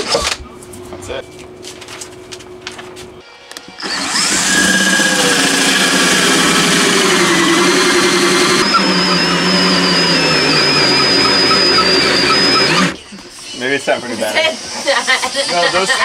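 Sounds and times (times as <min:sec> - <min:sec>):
cordless drill cutting wood: 0:03.8 - 0:13.0.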